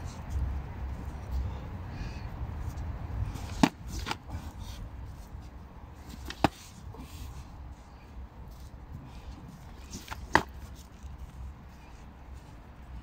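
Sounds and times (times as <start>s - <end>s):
padded practice swords smacking: 3.4s - 4.3s, 6.2s - 6.8s, 10.0s - 10.7s.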